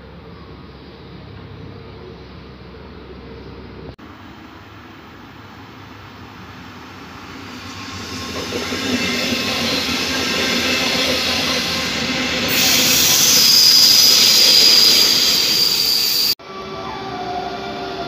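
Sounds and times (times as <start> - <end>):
train passing at speed: 0.0 - 18.0
high-pitched squeal: 7.2 - 18.0.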